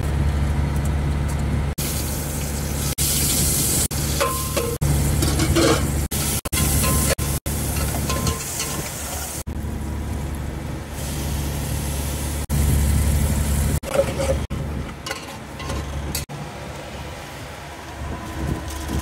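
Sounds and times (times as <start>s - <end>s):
boat engine droning: 16.3s - 19.0s.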